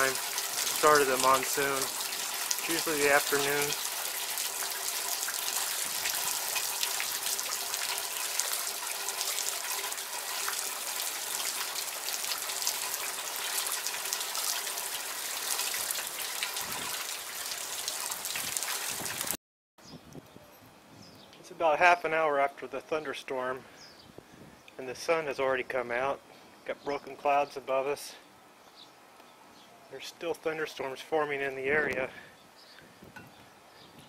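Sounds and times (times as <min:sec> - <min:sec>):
runoff splashing into buckets: 0:00.0 - 0:19.4
steady rain falling: 0:00.0 - 0:19.4.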